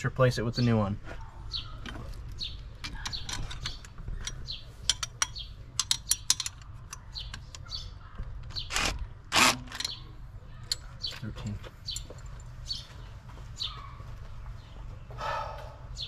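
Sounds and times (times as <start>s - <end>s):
birds chirping: 0.1s - 16.0s
metal tools clinking and scraping: 1.8s - 7.7s.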